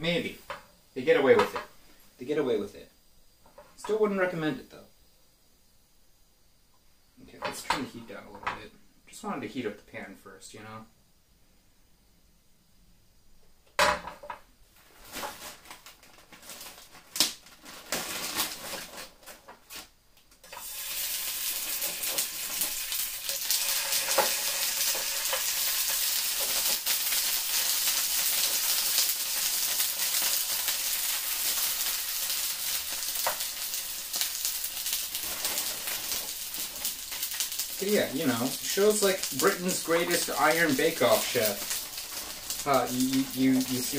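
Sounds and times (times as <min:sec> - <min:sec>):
loud sizzling in pan: 0:00.0 - 0:05.8, 0:13.8 - 0:43.9
frying pan clattering on grate: 0:13.8 - 0:14.5, 0:21.5 - 0:30.6.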